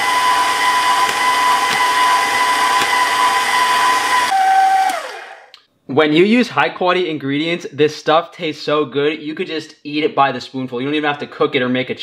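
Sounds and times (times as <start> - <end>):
stand mixer motor whine: 0.0 - 5.5.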